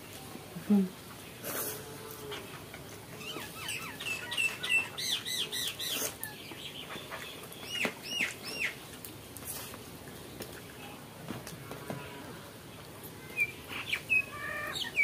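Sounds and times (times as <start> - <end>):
bird chirping: 3.2 - 8.8, 13.3 - 15.0.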